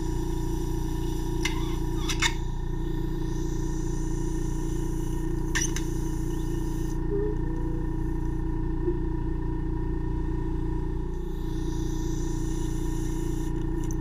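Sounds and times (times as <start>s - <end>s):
air hissing through suction tip: 0.0s - 7.0s, 11.4s - 14.0s
suction pump hum: 0.0s - 14.0s.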